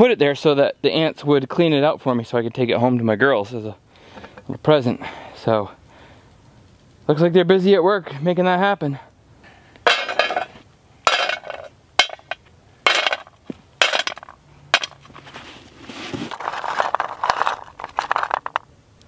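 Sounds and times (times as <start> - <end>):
knocks and rustles: 9.9 - 18.6
nuts rattling in metal pot: 11.1 - 15.1, 16.3 - 18.6.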